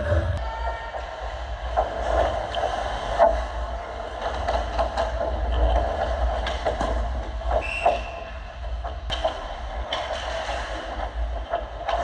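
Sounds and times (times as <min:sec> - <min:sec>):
low rumble: 0:00.0 - 0:02.1.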